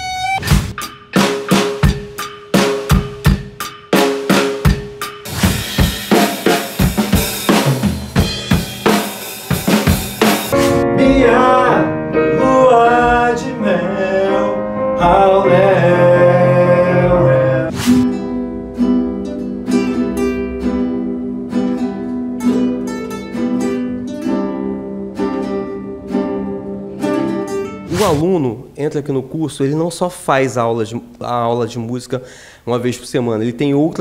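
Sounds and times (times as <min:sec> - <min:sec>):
nylon-string guitars picking notes: 0:00.0 - 0:28.8
person singing: 0:10.6 - 0:17.8.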